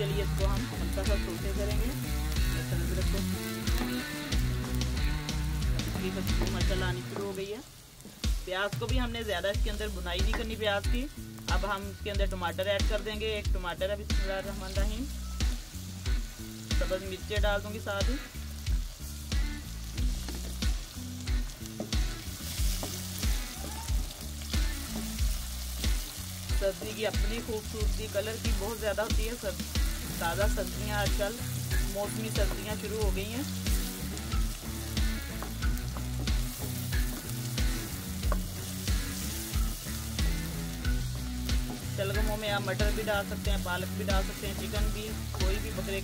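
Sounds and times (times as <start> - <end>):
background music with beat: 0.0 - 7.4, 8.0 - 46.0
vegetables sizzling in oil: 0.0 - 46.0
wooden spoon stirring: 20.0 - 20.8, 21.7 - 46.0.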